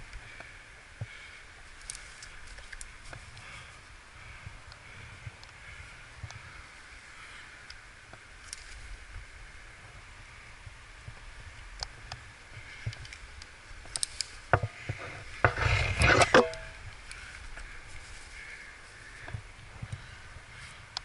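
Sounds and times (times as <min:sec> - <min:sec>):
scraping and rustling: 0:14.0 - 0:16.8.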